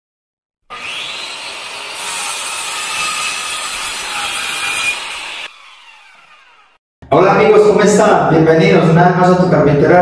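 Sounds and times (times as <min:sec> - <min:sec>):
power saw cutting wood: 0:00.6 - 0:06.8.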